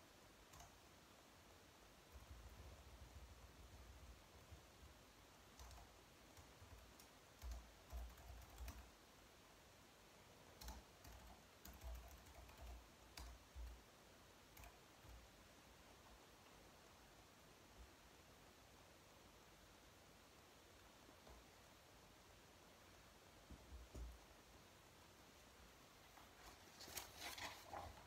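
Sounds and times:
faint keyboard typing: 0.4 - 1.0, 5.4 - 9.1, 10.4 - 17.0, 23.4 - 24.4, 26.0 - 28.0.

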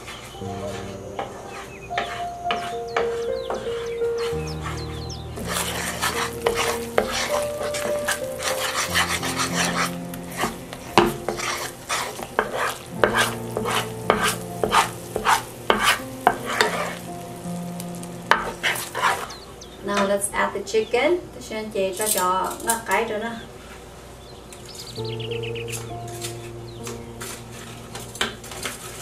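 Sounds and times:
wooden spatula scraping pan: 0.0 - 17.0, 18.3 - 19.4, 25.8 - 29.0
sauce sizzling: 0.0 - 19.8.

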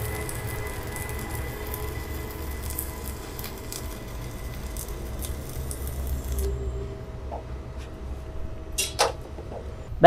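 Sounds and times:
welding arc crackling: 0.0 - 6.8.

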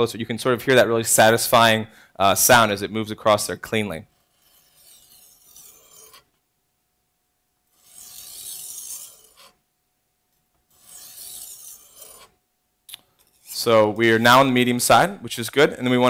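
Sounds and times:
knife scraping on sharpening stone: 4.1 - 6.4, 7.7 - 9.6, 10.7 - 12.4, 13.1 - 13.7.

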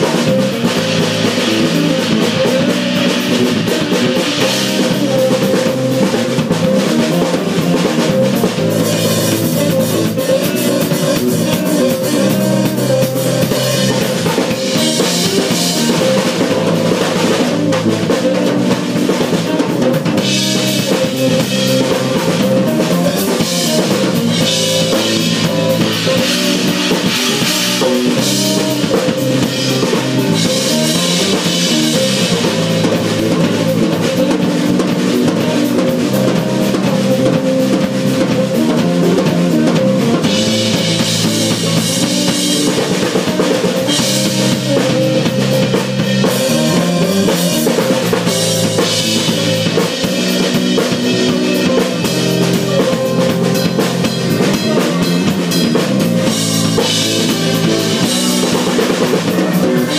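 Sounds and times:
drum kit beat: 0.0 - 59.9
live band music: 0.0 - 59.9.

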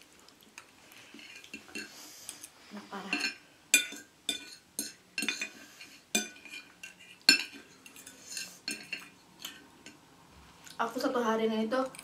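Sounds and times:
cutlery clinking on a plate: 3.1 - 5.6, 6.2 - 9.6.

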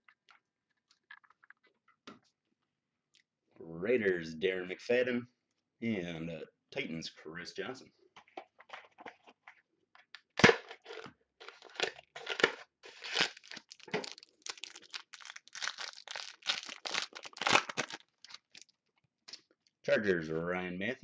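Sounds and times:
foil wrapper tearing and crinkling: 11.6 - 18.8.

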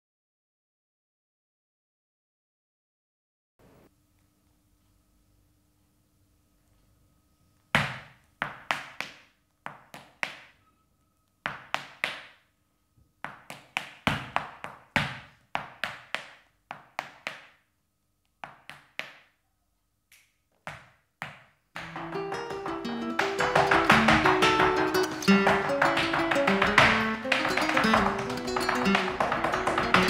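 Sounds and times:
dancer's shoes striking floor: 7.8 - 10.6, 11.5 - 12.4, 13.2 - 17.6, 18.4 - 19.3, 20.5 - 30.0.

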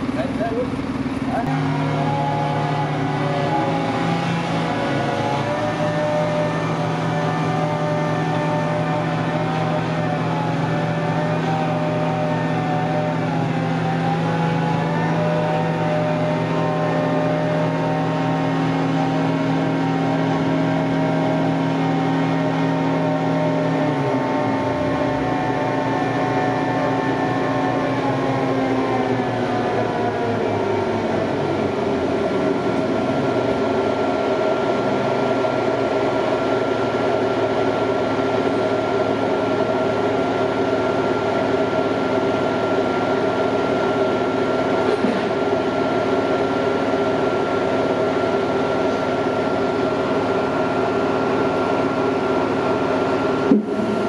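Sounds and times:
crane diesel engine revving: 0.0 - 54.0.

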